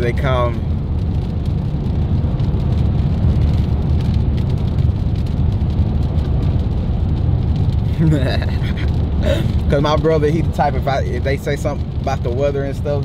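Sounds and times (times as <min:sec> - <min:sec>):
car engine and tyre noise: 0:00.0 - 0:13.0.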